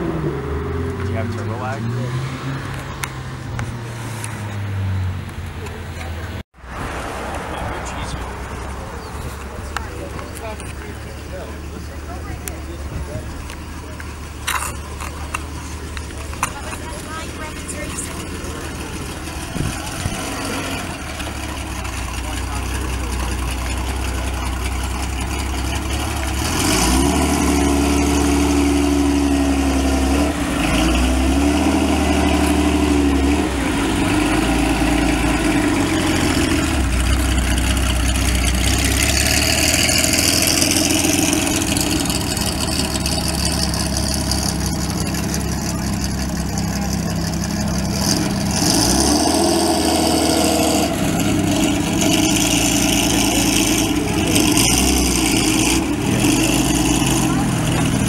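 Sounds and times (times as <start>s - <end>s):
car engine revving: 0.0s - 58.0s.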